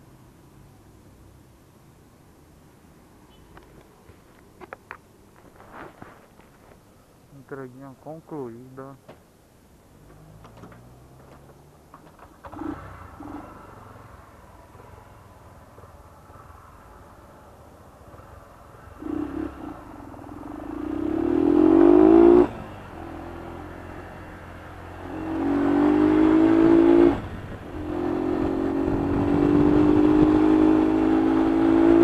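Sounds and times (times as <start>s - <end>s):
motorcycle engine accelerating: 10.1s - 14.3s, 18.9s - 32.0s.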